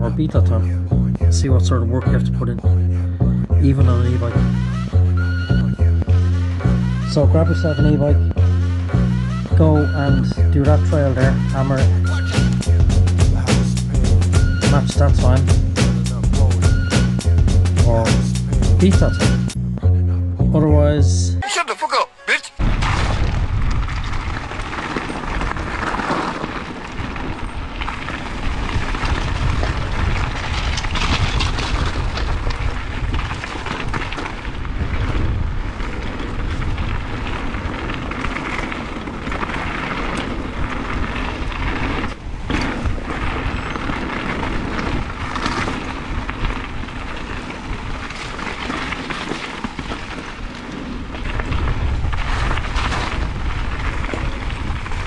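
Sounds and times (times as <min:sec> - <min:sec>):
tyres crunching over gravel: 0:00.0 - 0:19.5, 0:22.6 - 0:55.0
wind on microphone: 0:22.6 - 0:55.0
bike knocking and rattling: 0:23.5 - 0:55.0.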